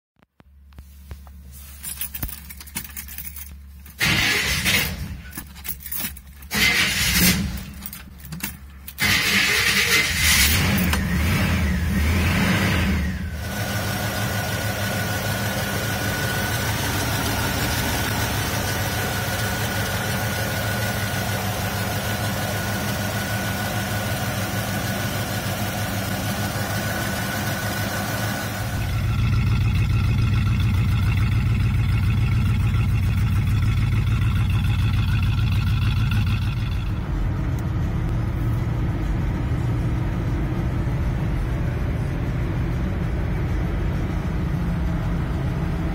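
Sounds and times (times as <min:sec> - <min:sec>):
engine cranking: 0:01.9 - 0:13.3, 0:28.8 - 0:37.1
car engine revving and idling: 0:09.0 - 0:45.9.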